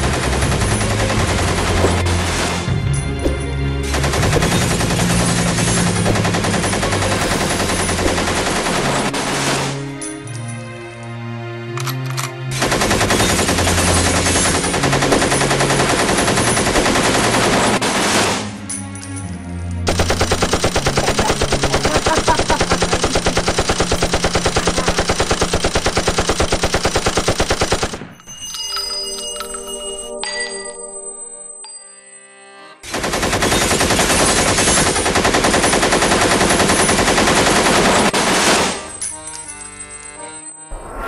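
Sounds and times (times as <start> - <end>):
machine-gun fire: 0.0 - 2.7, 3.3 - 9.9, 12.6 - 18.5, 19.9 - 28.1, 32.9 - 38.9
film music score: 0.0 - 41.0.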